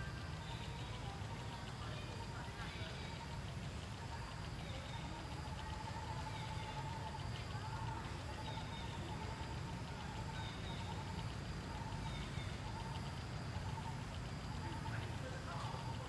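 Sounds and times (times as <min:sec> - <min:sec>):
low background rumble: 0:00.0 - 0:16.0
steady high buzz: 0:00.0 - 0:16.0.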